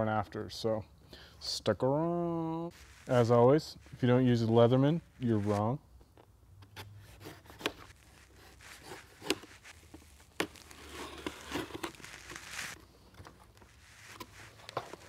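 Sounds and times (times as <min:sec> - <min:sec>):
packing tape tearing and crinkling: 0:07.3 - 0:15.0
cardboard flaps pulled open: 0:07.4 - 0:12.8.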